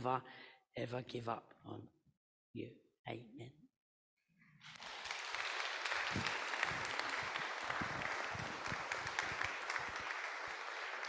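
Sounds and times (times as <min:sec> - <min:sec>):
congregation applauding: 0:04.6 - 0:11.0.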